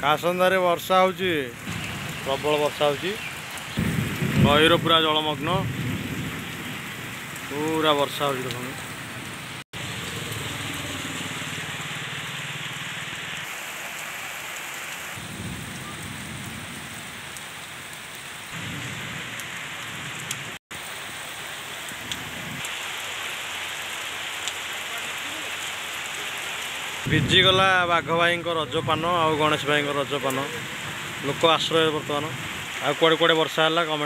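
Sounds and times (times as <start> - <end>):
heavy rain on ground: 0.0 - 34.0
low rumbles: 1.5 - 7.6.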